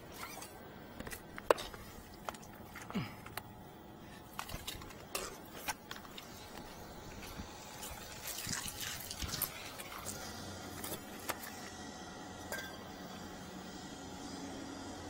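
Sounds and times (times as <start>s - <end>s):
water running and splashing: 7.2s - 10.3s.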